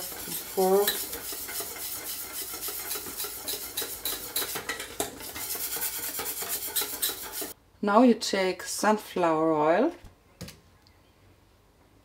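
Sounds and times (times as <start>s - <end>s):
whisk clinking in metal bowl: 0.0s - 7.6s.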